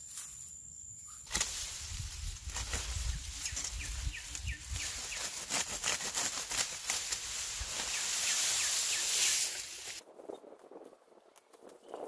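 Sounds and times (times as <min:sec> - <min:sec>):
grass rustling and snapping: 0:01.2 - 0:10.0
steady high hiss: 0:06.8 - 0:10.0.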